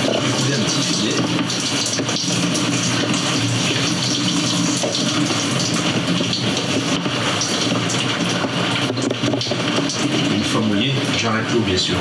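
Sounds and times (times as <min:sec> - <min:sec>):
shower water spraying: 0:00.0 - 0:12.0
steady low pump hum: 0:00.0 - 0:12.0.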